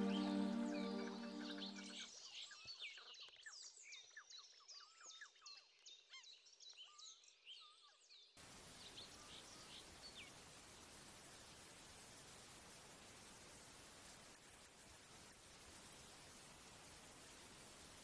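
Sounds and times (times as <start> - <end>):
steady faint hiss: 0.0 - 2.0, 8.4 - 18.0.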